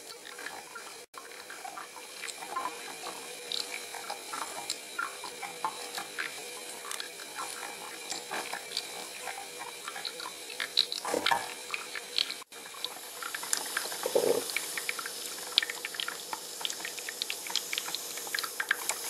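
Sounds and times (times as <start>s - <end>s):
water bubbling: 14.0s - 14.5s.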